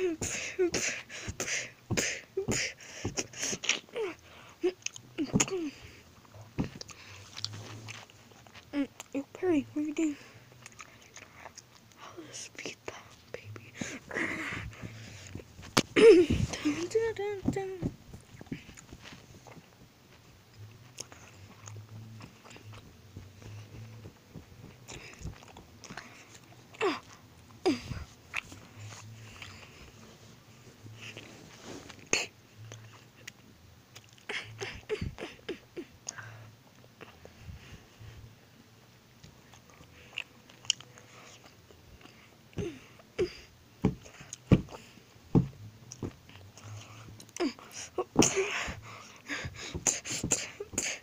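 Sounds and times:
toys knocking and rustling: 14.6 - 19.7, 43.8 - 46.3.

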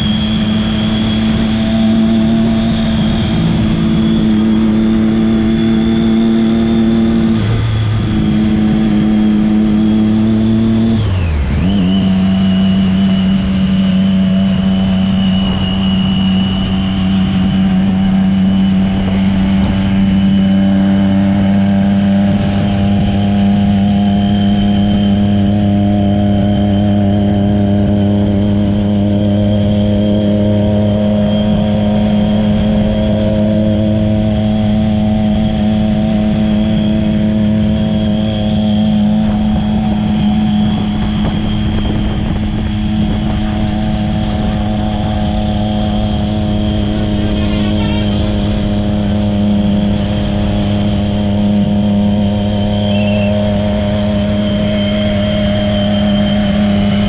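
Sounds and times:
motorcycle engine cruising: 0.0 - 57.0
wind rush: 0.0 - 57.0
high steady whistle: 11.2 - 18.7, 52.6 - 56.9.

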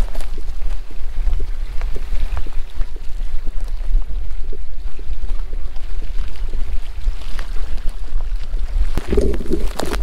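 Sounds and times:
wind rumble on microphone: 0.0 - 10.0.

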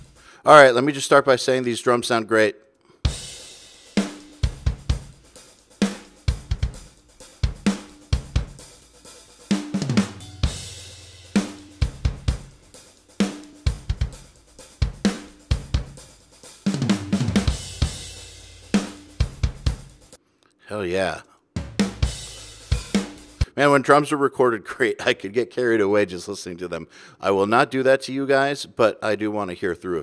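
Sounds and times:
rock drum kit groove: 0.0 - 0.4, 3.0 - 20.2, 21.6 - 23.5.

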